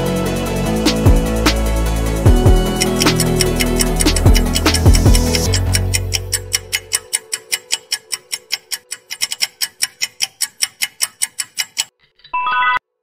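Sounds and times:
music: 0.0 - 11.9
countdown timer ticking: 2.3 - 11.9.

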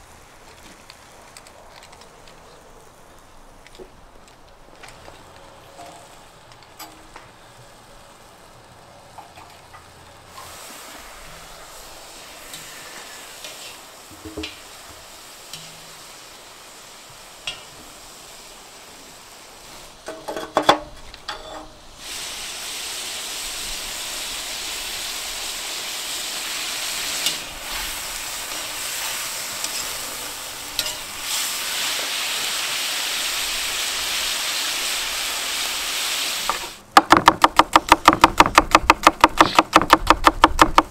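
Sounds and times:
faint hiss: 0.0 - 39.9
meat frying loud sizzle: 10.3 - 20.1, 21.8 - 38.7
knocks: 37.0 - 40.9.

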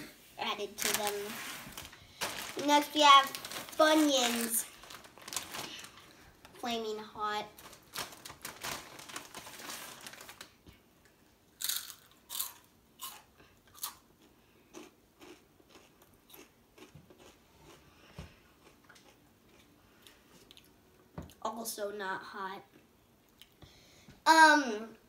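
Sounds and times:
chip bag rustling: 0.7 - 6.2, 7.4 - 10.6
soft chewing: 11.0 - 21.4, 22.7 - 23.6.

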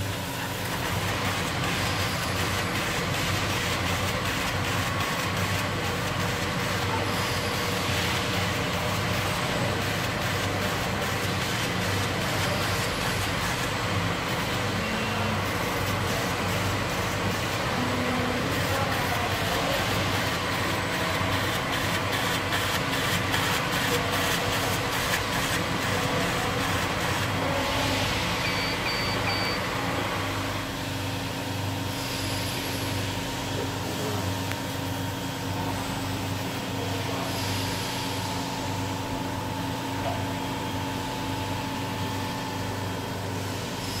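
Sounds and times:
laser cutter machine hum: 0.0 - 44.0
short high beeps: 28.4 - 29.7.

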